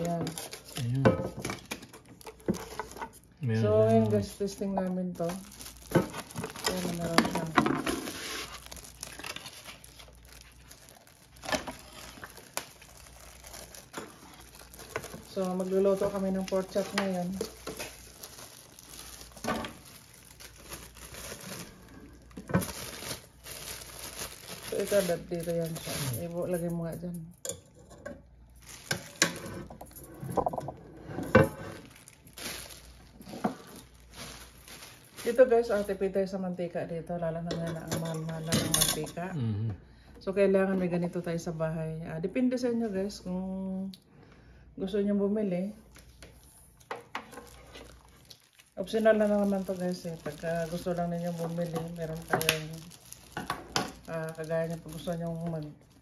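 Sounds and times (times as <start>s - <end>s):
plastic wrapping crinkling: 0.0s - 27.0s, 28.4s - 30.7s, 31.3s - 36.2s, 45.8s - 56.0s.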